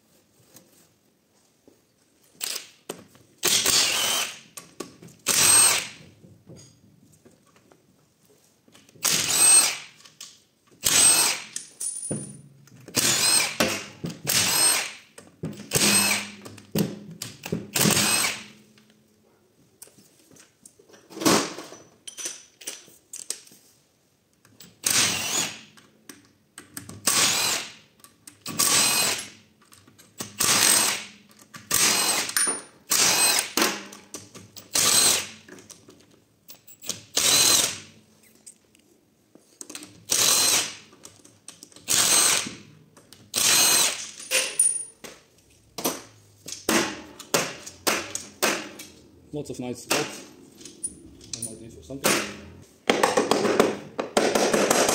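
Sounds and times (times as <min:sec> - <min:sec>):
impact wrench bursts: 0:03.4 - 0:04.4, 0:09.0 - 0:09.9, 0:12.9 - 0:15.0, 0:15.7 - 0:16.4, 0:17.7 - 0:18.5, 0:27.0 - 0:27.8, 0:28.5 - 0:29.4, 0:30.2 - 0:31.1, 0:31.7 - 0:33.6, 0:34.6 - 0:35.4, 0:36.9 - 0:37.9, 0:40.1 - 0:40.8, 0:41.9 - 0:42.6, 0:43.3 - 0:44.6.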